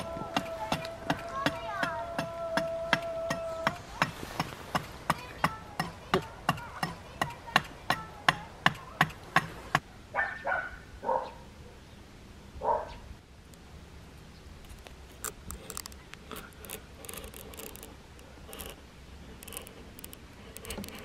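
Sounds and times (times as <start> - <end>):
sharp evenly spaced knocks: 0.0 - 9.9
dog barking: 10.2 - 11.5, 12.6 - 13.0.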